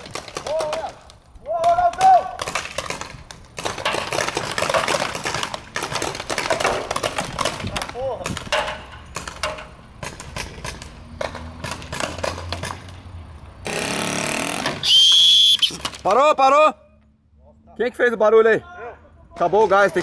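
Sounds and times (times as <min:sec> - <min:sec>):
paintball markers firing pops: 0:00.0 - 0:12.9.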